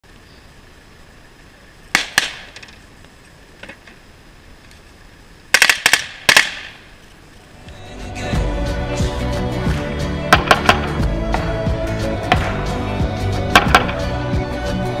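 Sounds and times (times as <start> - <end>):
rifle shots: 1.9 - 2.6, 5.5 - 6.9.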